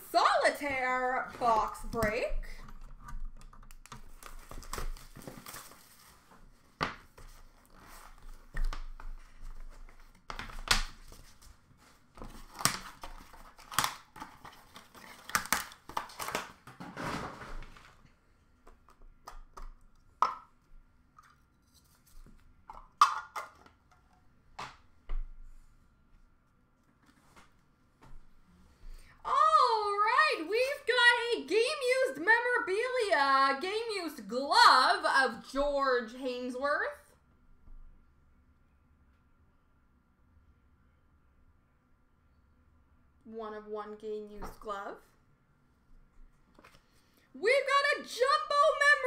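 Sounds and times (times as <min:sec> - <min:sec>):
cardboard tearing and rustling: 0:04.1 - 0:06.8.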